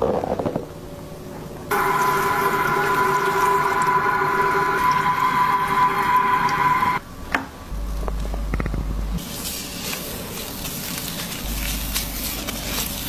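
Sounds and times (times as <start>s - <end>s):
shower spraying water: 1.7s - 7.0s
lathered hair being rubbed: 9.2s - 13.0s.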